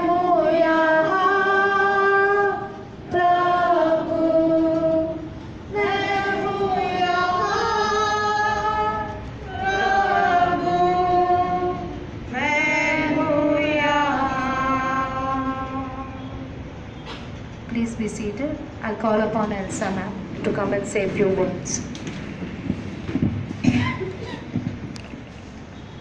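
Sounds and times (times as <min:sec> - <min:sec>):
congregation singing a hymn: 0:00.0 - 0:16.6.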